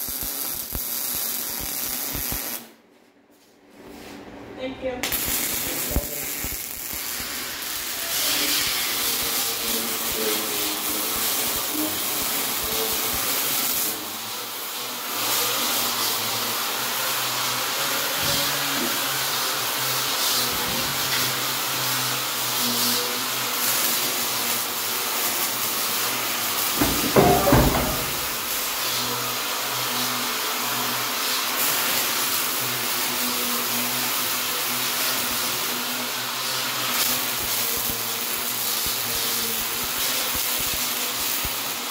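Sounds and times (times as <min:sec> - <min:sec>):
welding hiss: 0:00.0 - 0:02.8, 0:05.0 - 0:41.9
metal clatter: 0:26.7 - 0:28.7.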